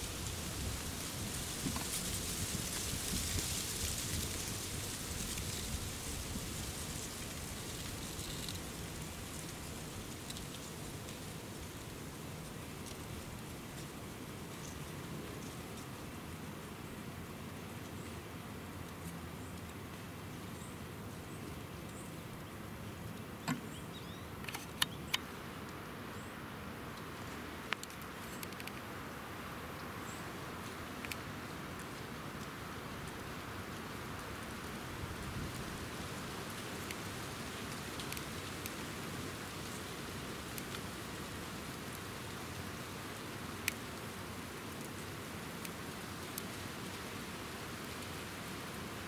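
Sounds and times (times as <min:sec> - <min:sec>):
low rumble and hiss: 0:00.0 - 0:49.0
faint bird chirps: 0:23.5 - 0:25.3.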